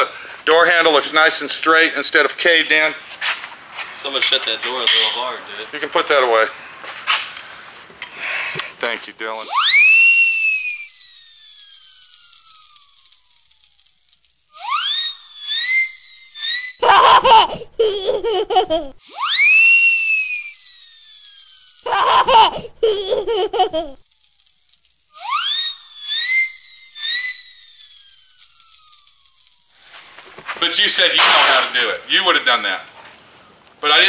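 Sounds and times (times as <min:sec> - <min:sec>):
baby laughing and squealing: 0:16.8 - 0:19.5, 0:21.9 - 0:24.0, 0:25.2 - 0:25.6.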